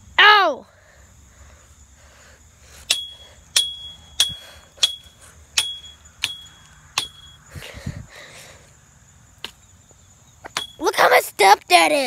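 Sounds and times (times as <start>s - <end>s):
stick striking metal fence rail: 2.9s - 7.4s, 10.5s - 10.8s.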